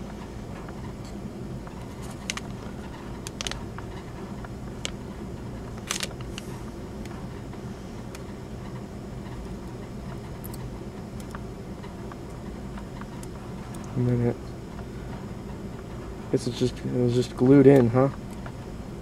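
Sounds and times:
low hum: 0.0 - 19.0
small clicks of handled metal parts: 3.2 - 3.6, 5.8 - 6.4.

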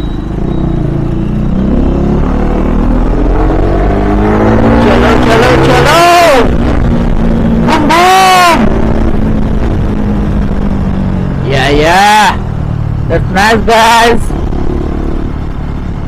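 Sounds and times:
motorcycle engine accelerating: 0.0 - 11.4.

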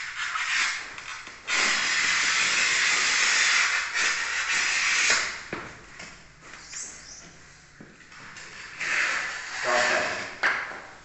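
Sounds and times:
tile cutter scratching glazed tile: 0.0 - 5.3, 8.6 - 10.2.

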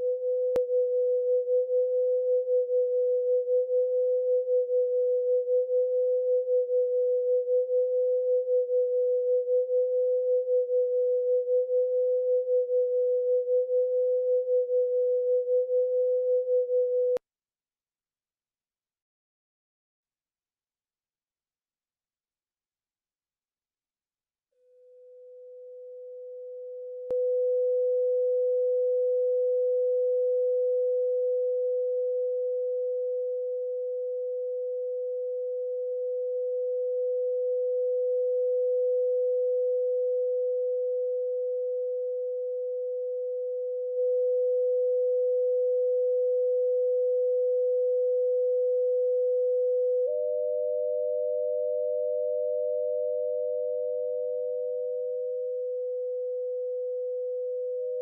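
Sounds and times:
steady sine tone: 0.0 - 17.2, 24.5 - 58.0
second higher steady tone: 50.0 - 55.2.

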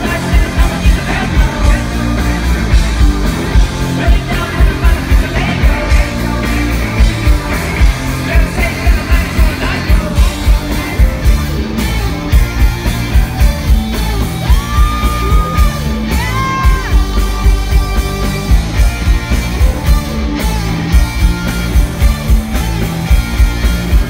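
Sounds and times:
live rock band playing: 0.0 - 24.0
singer yelling vocals: 14.5 - 17.1.

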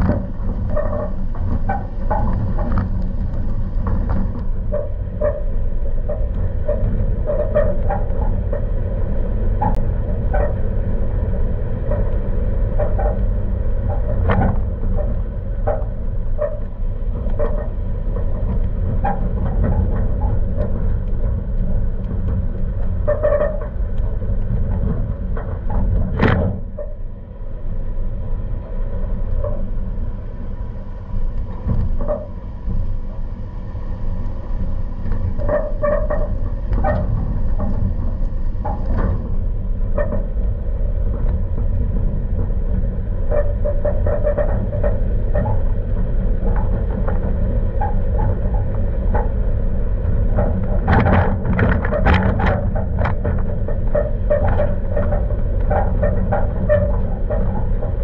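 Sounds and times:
truck squeaks and creaks: 0.0 - 2.8, 23.0 - 23.8, 31.9 - 32.4, 35.2 - 40.3, 43.3 - 45.7, 50.3 - 58.0
truck engine and tyre rumble: 0.0 - 58.0.

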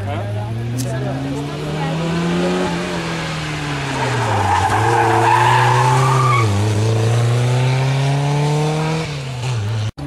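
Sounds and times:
car engine running hard: 0.0 - 10.0
tyres squealing: 3.7 - 6.6.

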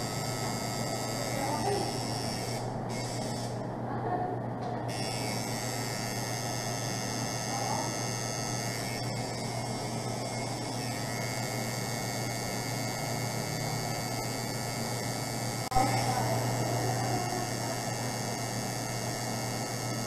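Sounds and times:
tattoo machine buzzing: 0.0 - 3.6, 4.9 - 20.0.

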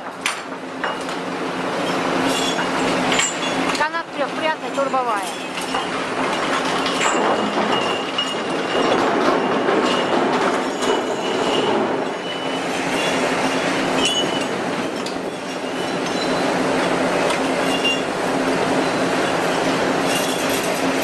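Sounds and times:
machinery hum and rattle: 0.0 - 21.0
high metallic squeals and clinks: 1.8 - 3.7, 9.8 - 16.5, 17.6 - 18.1, 18.8 - 20.8.

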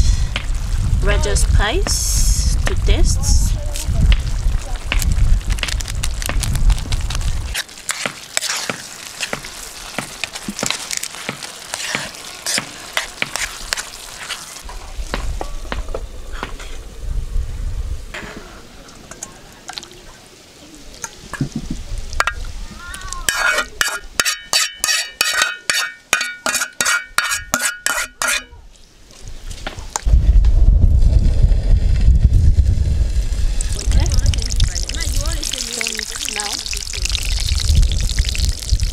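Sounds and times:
meat sauce sizzling in a pan: 0.1 - 15.2, 33.4 - 38.9
spoon clinking and scraping metal pan: 7.9 - 9.5, 23.3 - 28.5.

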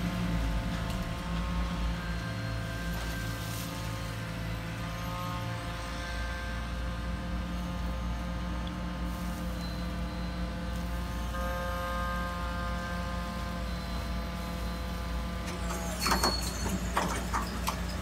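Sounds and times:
hydraulic pump humming: 0.0 - 18.0.

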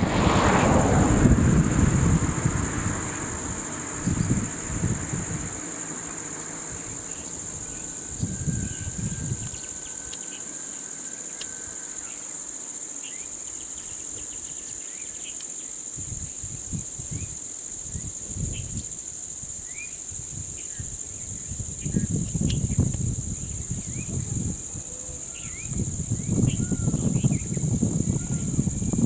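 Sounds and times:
low rumble: 0.0 - 10.1
insects droning: 0.0 - 29.0.

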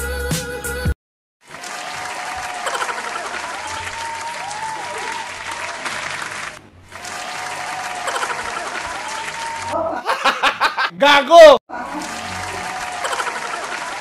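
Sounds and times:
crowd clapping and cheering: 1.4 - 9.8, 11.7 - 14.0.

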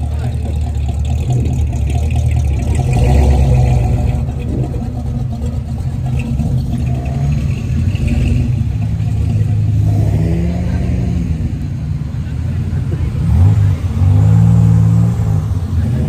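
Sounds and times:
car engines driving past: 0.0 - 16.0
engine revving: 0.0 - 16.0.

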